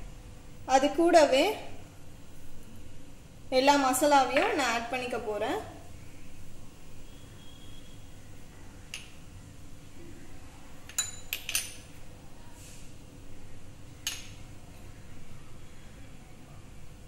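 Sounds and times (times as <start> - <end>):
small bowls clinking: 10.8 - 12.0.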